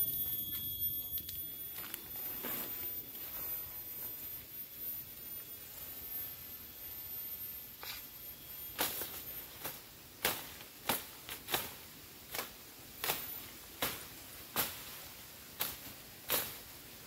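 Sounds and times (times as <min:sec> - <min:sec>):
machete chopping brush: 0:08.8 - 0:16.7.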